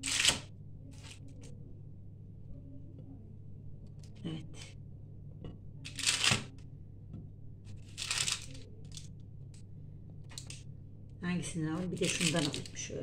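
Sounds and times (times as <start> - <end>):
low steady hum: 0.0 - 13.0
baking paper rustling: 7.7 - 9.1, 11.8 - 13.0.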